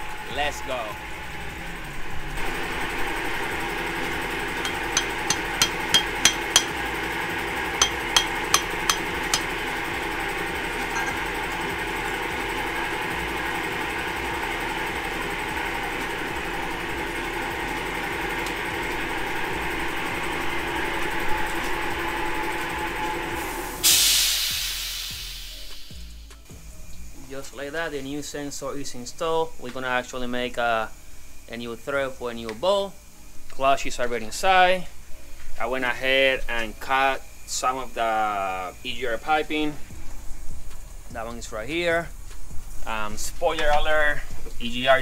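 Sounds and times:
steady hum: 0.0s - 24.0s
hammer tapping on metal: 4.6s - 6.9s, 7.8s - 9.6s.

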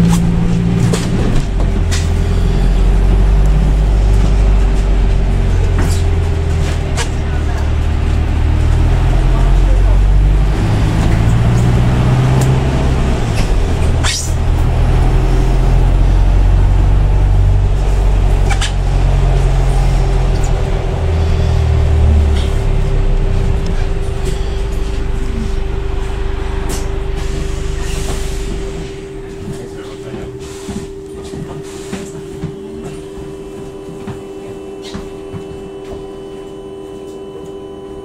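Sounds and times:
bus drivetrain and road drone: 0.0s - 38.0s
steady hum: 12.6s - 38.0s.

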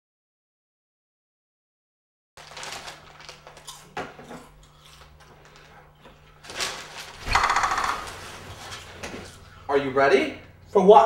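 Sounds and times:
plastic chip bag rustling: 2.4s - 9.4s
steady low hum: 2.4s - 11.0s.

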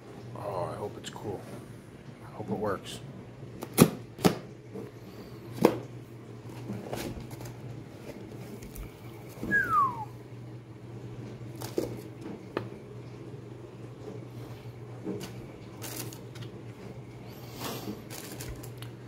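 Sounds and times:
packaging rustling: 15.2s - 16.5s, 17.6s - 19.0s.

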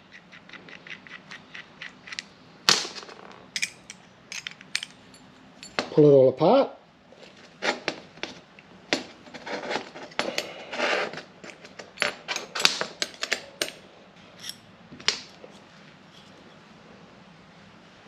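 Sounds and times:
metal parts clicking and clinking: 0.1s - 2.3s, 2.9s - 5.9s, 8.2s - 13.8s, 14.4s - 14.6s.

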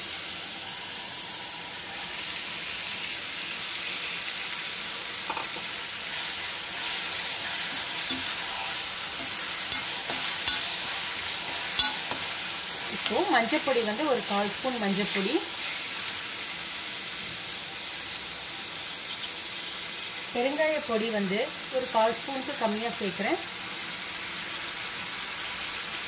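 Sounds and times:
tomatoes sizzling in hot oil: 0.0s - 26.0s
spatula scraping metal pan: 6.7s - 13.3s
utensil clicking against metal: 7.7s - 8.4s.

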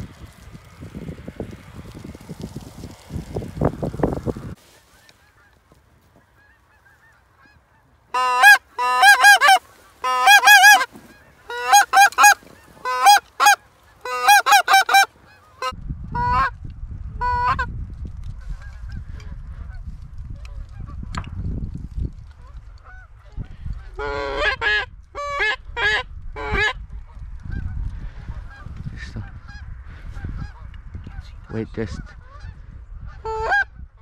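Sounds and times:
low rumbling microphone noise: 0.0s - 4.6s, 15.8s - 34.0s
goose call honks: 6.4s - 16.5s.

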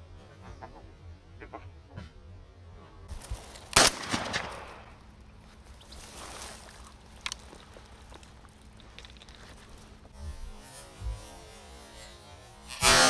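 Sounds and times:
shotgun shot echoing: 3.8s - 5.0s.

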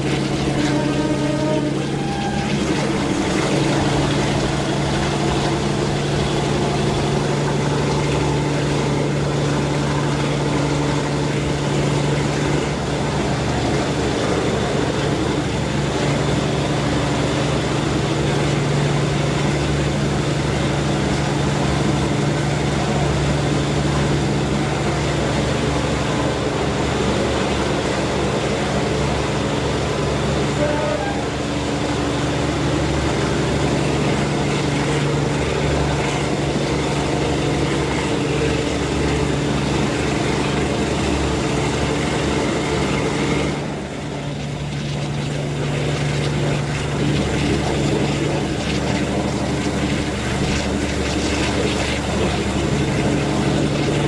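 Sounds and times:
train wheels rumbling on rails: 0.0s - 9.8s
diesel engines droning: 0.0s - 54.0s.

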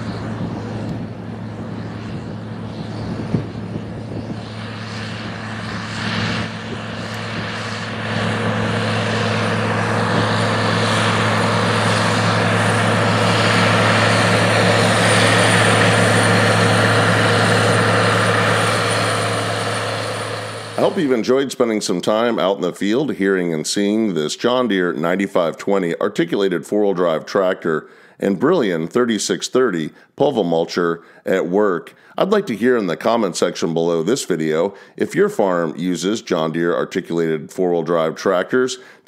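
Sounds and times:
tractor diesel engine under load: 0.0s - 21.3s.

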